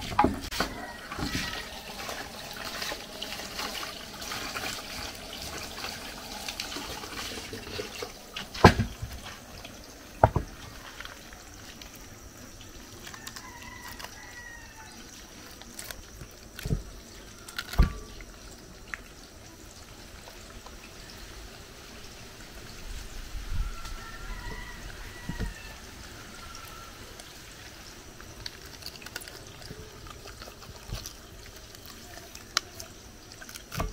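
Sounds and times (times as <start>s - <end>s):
water running from a tap: 0.0s - 33.9s
wet hands handling fish: 24.4s - 33.9s.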